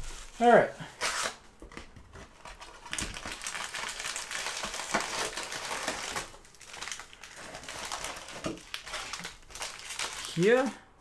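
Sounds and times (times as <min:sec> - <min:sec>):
plastic wrappers crinkling: 0:02.0 - 0:10.8.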